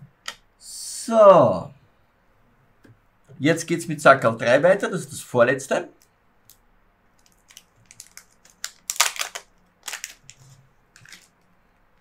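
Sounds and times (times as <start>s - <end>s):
plastic bag crinkling: 7.2s - 11.5s.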